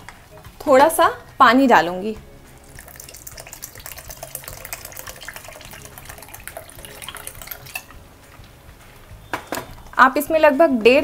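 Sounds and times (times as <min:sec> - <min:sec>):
water pouring into a pan: 0:02.6 - 0:08.0.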